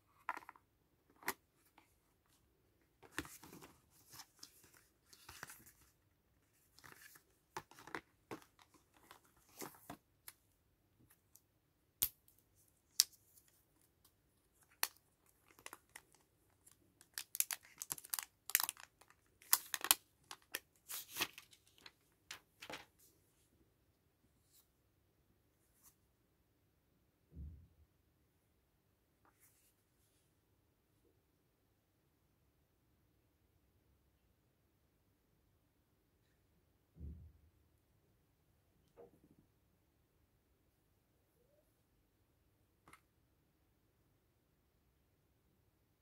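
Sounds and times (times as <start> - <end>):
plastic and cardboard crinkling: 6.5 - 10.0, 14.6 - 22.9.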